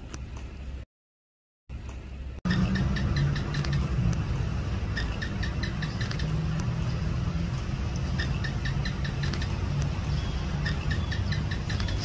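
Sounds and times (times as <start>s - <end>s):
steady low hum: 1.7s - 12.0s
gecko chirping: 2.5s - 12.0s.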